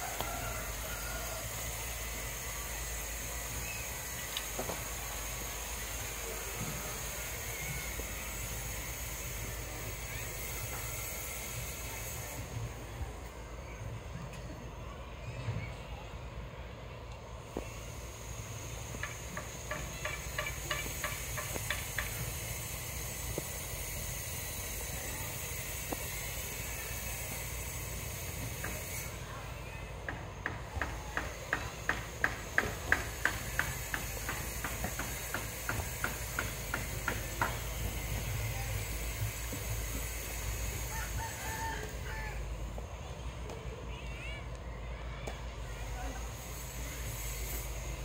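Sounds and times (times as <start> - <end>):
hammer blows: 30.0 - 41.2.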